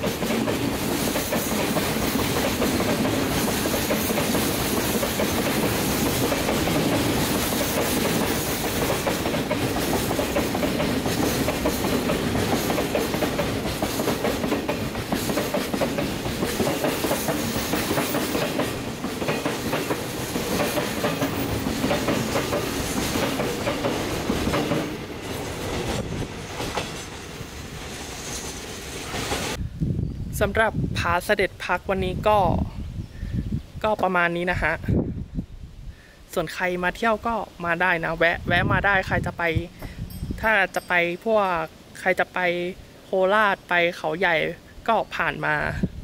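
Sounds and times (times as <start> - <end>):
freight train wheels clacking: 0.0 - 29.6.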